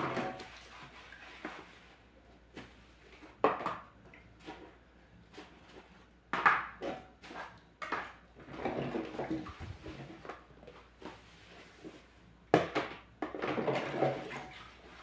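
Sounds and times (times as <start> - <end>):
sponge scrubbing: 0.1 - 3.0.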